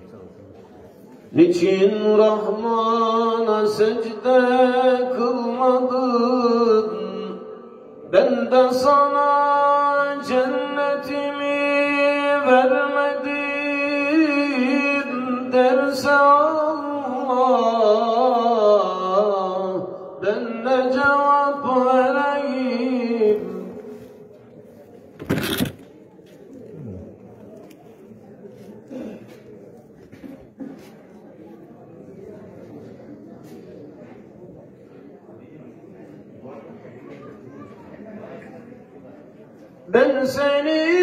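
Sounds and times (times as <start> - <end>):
man singing a hymn: 1.3 - 7.5, 8.1 - 24.0, 39.9 - 41.0.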